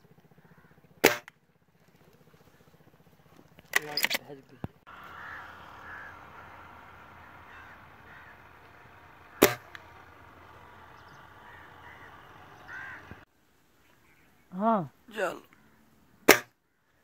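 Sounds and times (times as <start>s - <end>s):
faint bird calls: 0.0s - 1.0s, 1.7s - 17.0s
air rifle shot: 1.0s - 1.3s, 9.2s - 9.9s.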